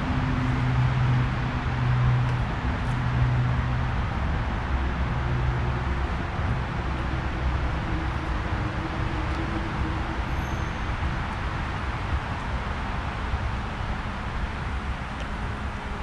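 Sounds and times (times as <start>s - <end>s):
cars rushing by on highway: 0.0s - 16.0s
low engine hum: 0.0s - 16.0s.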